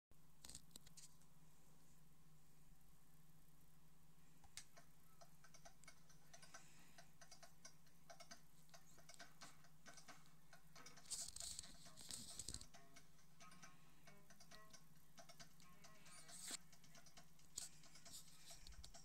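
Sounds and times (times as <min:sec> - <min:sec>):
faint irregular clicking: 0:04.4 - 0:19.0.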